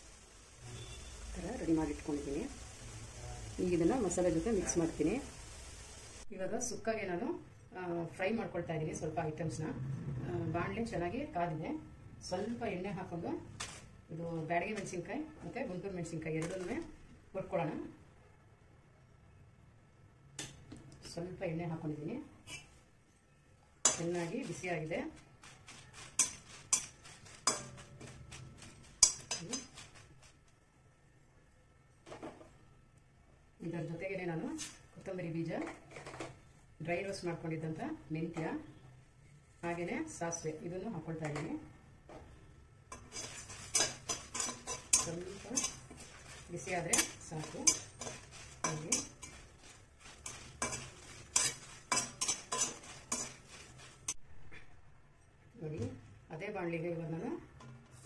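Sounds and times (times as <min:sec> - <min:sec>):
chillies frying in oil: 0:00.0 - 0:09.6, 0:10.3 - 0:18.0, 0:23.8 - 0:30.6, 0:33.6 - 0:54.2
metal utensil scraping pan: 0:22.4 - 0:22.8, 0:23.8 - 0:30.4, 0:42.9 - 0:54.2.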